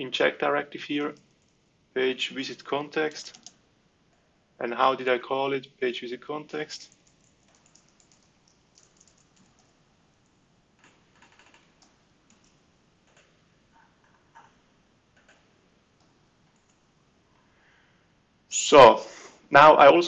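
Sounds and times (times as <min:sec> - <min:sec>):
computer keyboard typing clicks: 0:03.2 - 0:03.6, 0:06.9 - 0:09.8, 0:10.8 - 0:14.6, 0:15.2 - 0:15.4, 0:16.0 - 0:16.8.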